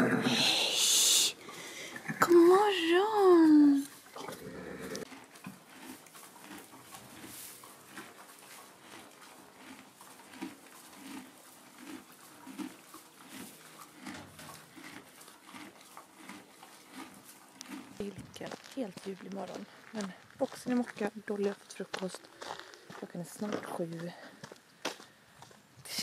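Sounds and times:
horse chewing hay: 0:03.8 - 0:20.4.

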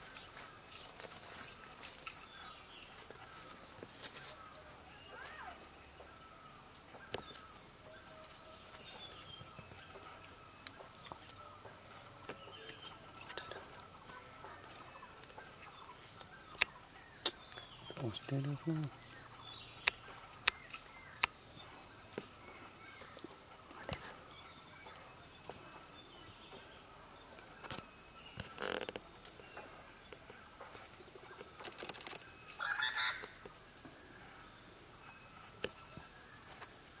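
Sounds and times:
loud bird call: 0:32.5 - 0:33.5.

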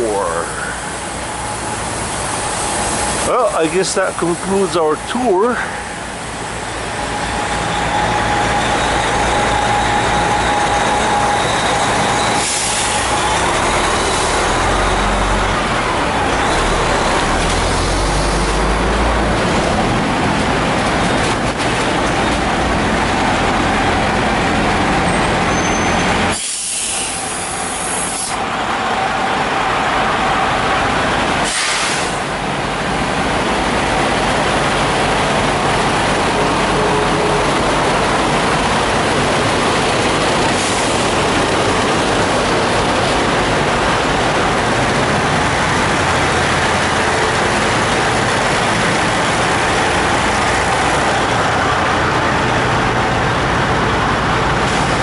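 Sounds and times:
diesel trucks idling: 0:00.0 - 0:55.0
air brakes hissing: 0:11.6 - 0:14.5, 0:25.5 - 0:28.4, 0:31.4 - 0:32.3.

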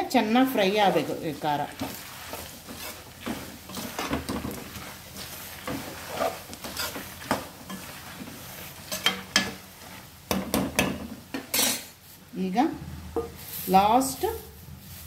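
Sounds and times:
oil sizzling: 0:00.0 - 0:12.3, 0:13.0 - 0:15.0
metal spatula scraping a pan: 0:00.2 - 0:12.0.

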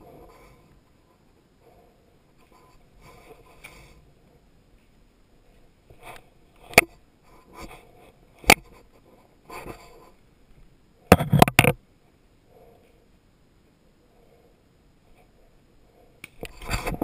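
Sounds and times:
faint rustling: 0:00.0 - 0:13.2.

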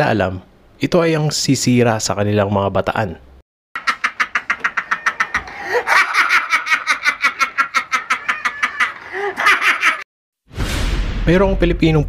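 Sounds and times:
man laughing hard: 0:04.3 - 0:10.0.

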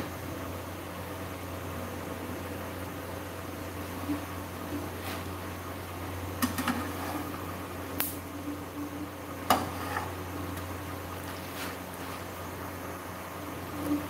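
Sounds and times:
low steady hum: 0:00.0 - 0:14.0
spatula scraping frying pan: 0:06.5 - 0:07.4, 0:09.5 - 0:10.3.

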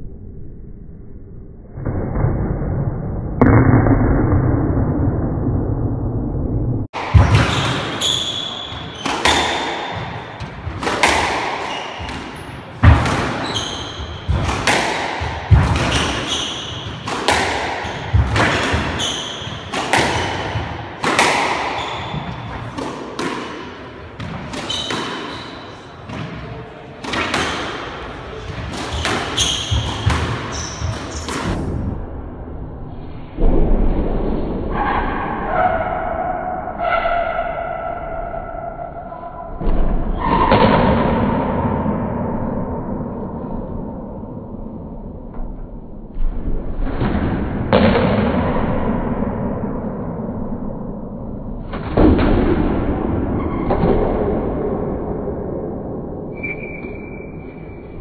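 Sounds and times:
squash ball cracking off racquets: 0:07.0 - 0:31.6.

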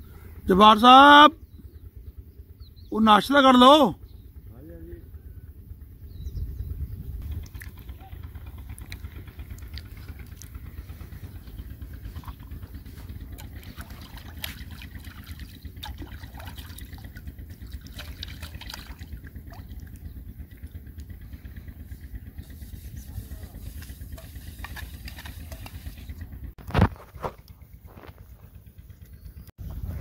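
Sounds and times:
steady low rumble: 0:01.3 - 0:03.0, 0:03.9 - 0:30.0
water splashing and trickling: 0:11.8 - 0:20.7, 0:22.7 - 0:26.2.

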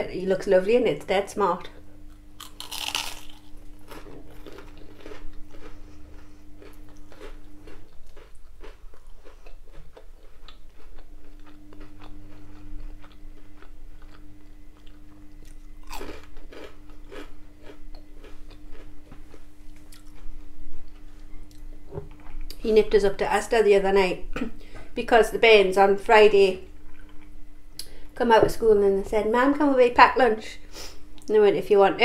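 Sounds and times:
crunchy chewing: 0:02.1 - 0:21.7.

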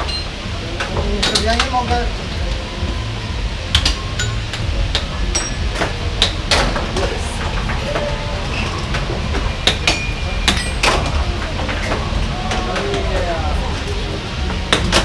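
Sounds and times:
steady low hum: 0:00.0 - 0:15.0
air hockey puck clacking: 0:03.7 - 0:07.1, 0:08.9 - 0:13.3, 0:14.5 - 0:15.0.

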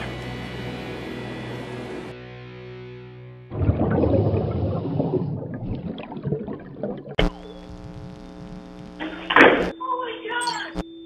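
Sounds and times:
held electronic chord: 0:00.0 - 0:04.0
dense rough noise: 0:03.5 - 0:09.7.

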